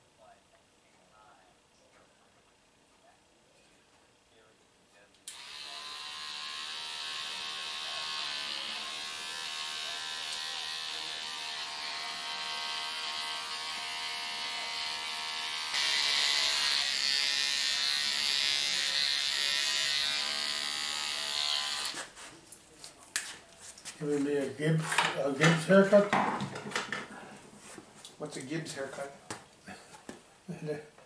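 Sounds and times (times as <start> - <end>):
electric hair clippers buzzing: 5.3 - 22.1.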